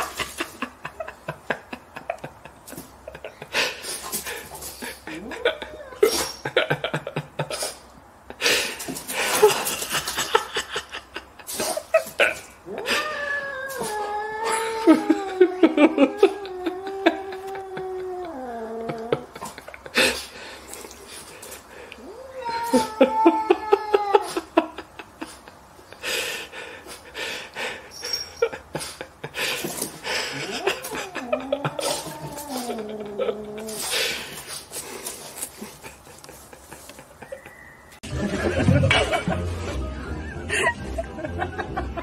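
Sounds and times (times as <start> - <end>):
person laughing breathily: 0.0 - 13.2, 14.5 - 21.9, 22.7 - 37.6, 38.3 - 42.0.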